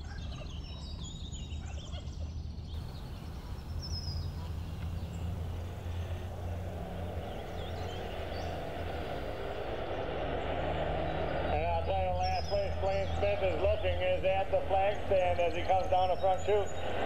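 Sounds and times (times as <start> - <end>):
faint bird chirps: 0.0 - 9.5
outdoor noise: 0.0 - 17.0
low vehicle engine hum: 2.7 - 17.0
rushing noise: 2.8 - 11.5.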